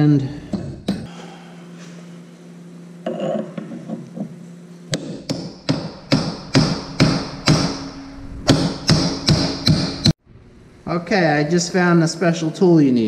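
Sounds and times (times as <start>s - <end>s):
hammer striking steel punch: 4.9s - 10.1s.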